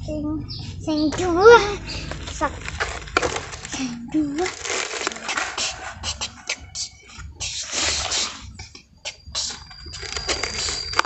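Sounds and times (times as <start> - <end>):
toy excavator scraping sand: 1.9 - 6.4, 7.4 - 8.4, 9.4 - 11.0
thin high whine: 7.5 - 11.0.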